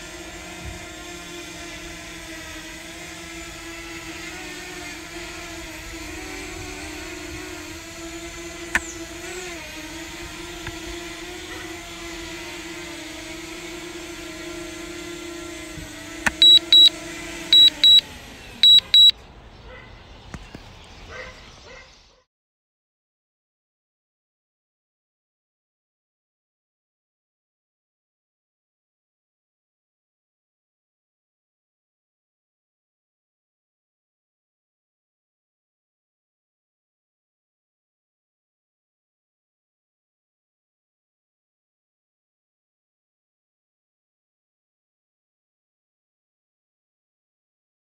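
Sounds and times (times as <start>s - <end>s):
drone motors winding down: 0.2s - 19.1s
drone propeller whine: 1.0s - 19.1s
short high electronic beeps: 16.3s - 16.9s, 17.6s - 18.0s, 18.6s - 19.1s.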